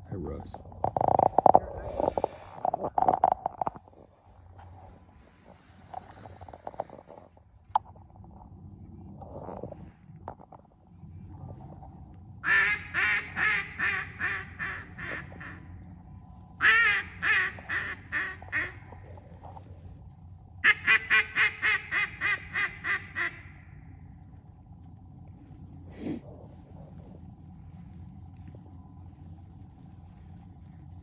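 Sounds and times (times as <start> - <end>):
duck quacking: 12.4 - 15.6, 16.6 - 18.9, 20.6 - 23.5.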